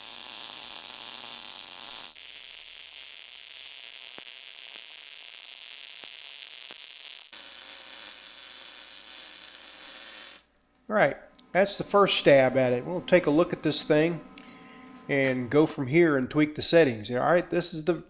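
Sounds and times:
welding arc hissing: 0.0 - 10.5.

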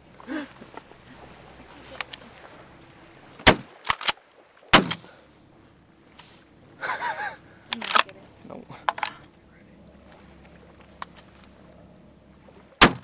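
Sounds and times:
shotgun blasts: 3.4 - 4.1, 4.7 - 5.1, 12.8 - 13.0.

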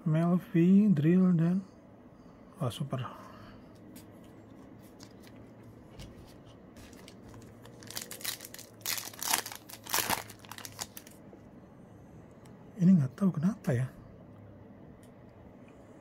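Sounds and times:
foil wrapper tearing and crinkling: 6.8 - 11.2.

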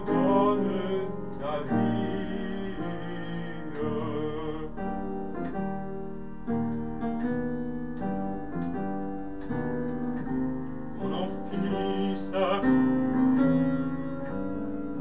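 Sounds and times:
piano playing slow chords: 0.0 - 15.0.

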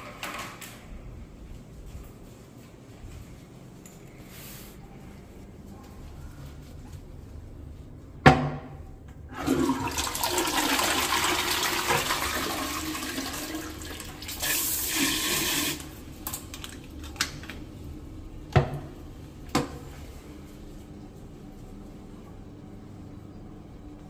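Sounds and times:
toilet flushing: 9.3 - 17.4.

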